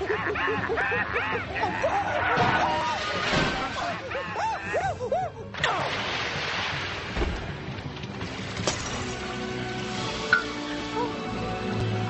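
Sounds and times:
rushing churning water: 5.6s - 9.5s.

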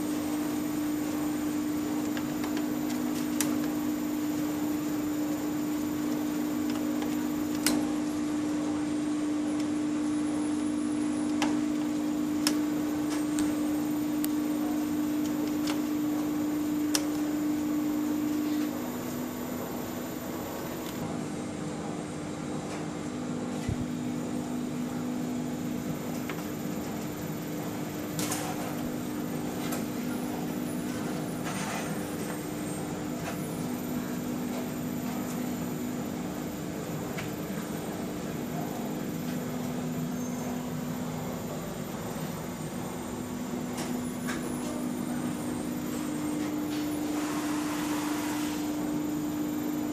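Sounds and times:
electrical machine hum: 0.0s - 49.9s.

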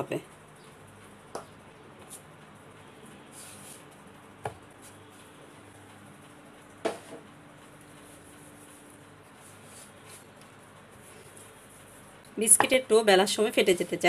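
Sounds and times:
rolling pin knocking on board: 6.8s - 7.2s.

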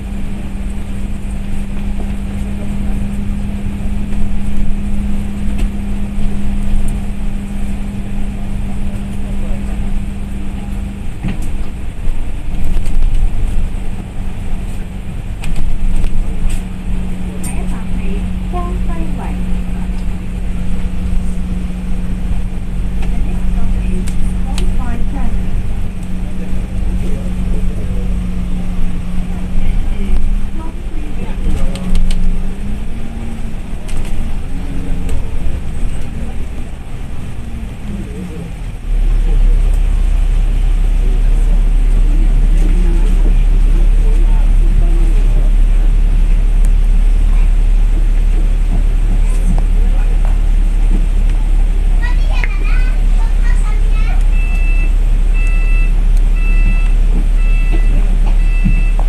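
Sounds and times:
bus body rattling: 0.0s - 59.0s
bus engine and road rumble: 0.0s - 59.0s
low hum: 0.0s - 59.0s.

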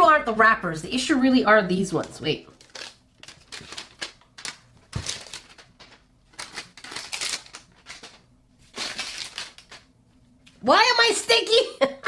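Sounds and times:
cardboard box and plastic crinkling: 2.5s - 9.9s.

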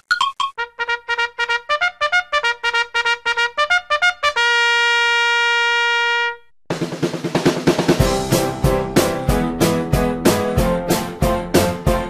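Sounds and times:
instrumental intro music: 6.7s - 12.0s.

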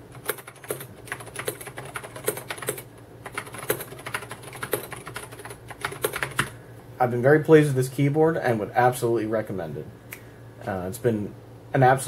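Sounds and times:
mechanical keyboard typing: 0.1s - 6.5s.

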